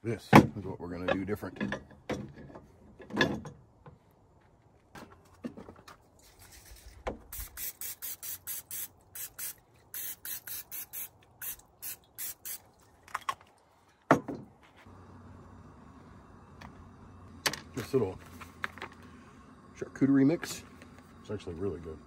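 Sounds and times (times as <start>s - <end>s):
cooking spray bursts: 7.3s - 12.8s.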